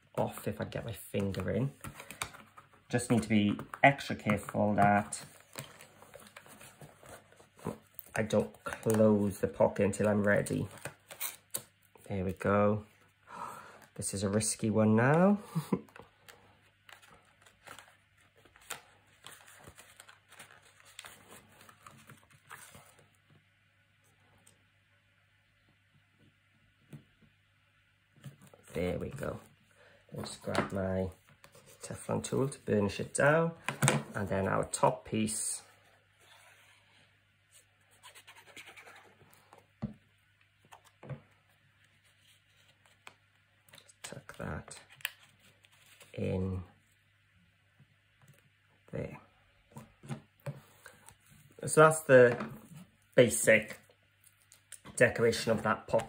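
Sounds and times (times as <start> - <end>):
paper rustling: 15.8 - 23.2.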